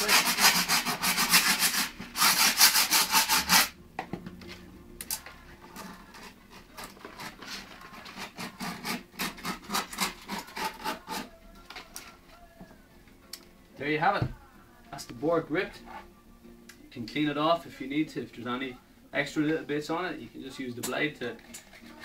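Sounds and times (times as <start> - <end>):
file rasping on griptape: 0.0 - 3.8, 6.1 - 11.3.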